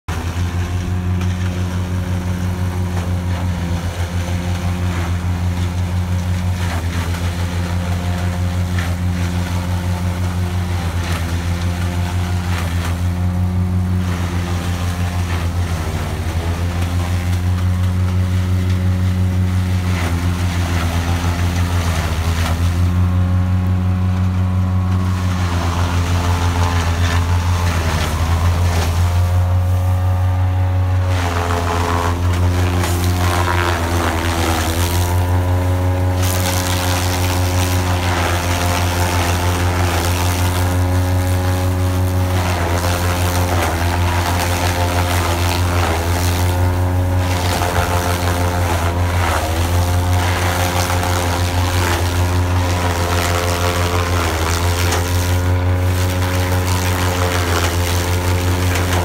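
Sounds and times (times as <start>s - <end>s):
tractor engine hum: 0.0s - 59.0s
forage chopper chopping stalks: 0.1s - 59.0s.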